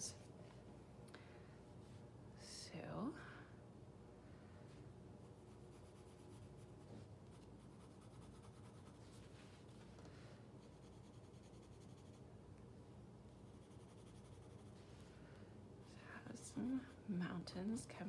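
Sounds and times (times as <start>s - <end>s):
colored pencil scratching on paper: 5.4s - 9.8s, 10.6s - 12.2s, 13.3s - 14.8s.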